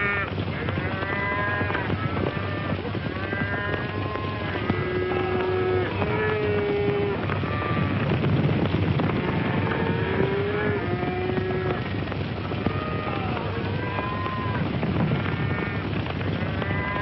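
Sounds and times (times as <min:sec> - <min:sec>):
cattle bawling: 0:00.0 - 0:08.0, 0:09.1 - 0:11.9, 0:16.4 - 0:17.0
rumble of hooves: 0:00.0 - 0:17.0.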